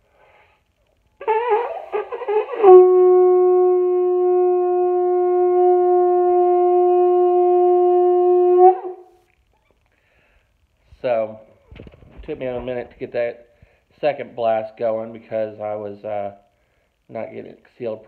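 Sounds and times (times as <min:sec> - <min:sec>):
conch shell horn blowing: 0:01.2 - 0:09.2.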